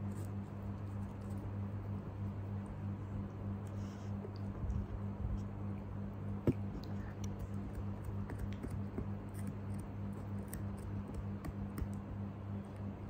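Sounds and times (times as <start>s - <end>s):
steady low hum: 0.0s - 13.0s
puppy gnawing chew stick: 3.2s - 13.0s.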